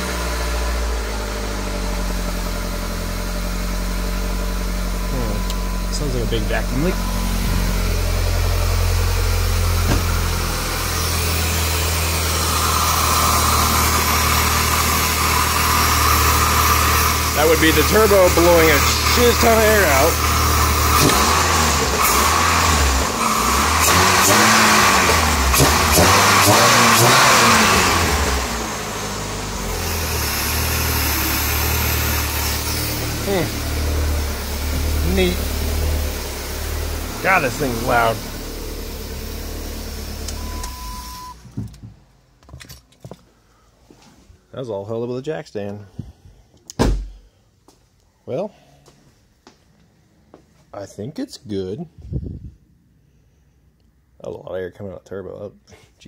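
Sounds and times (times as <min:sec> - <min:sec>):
car engine idling: 0:00.0 - 0:42.4.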